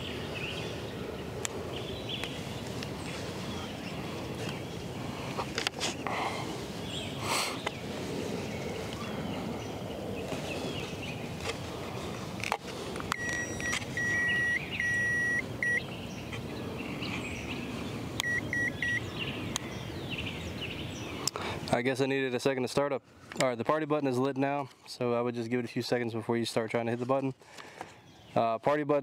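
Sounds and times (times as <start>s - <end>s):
keypad electronic beeps: 13.2s - 15.8s, 18.2s - 19.0s.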